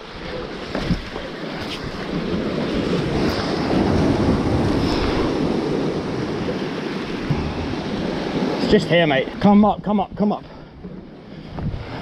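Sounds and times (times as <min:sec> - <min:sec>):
sea swell washing over rocks: 0:00.0 - 0:09.4
wind buffeting microphone: 0:00.0 - 0:12.0.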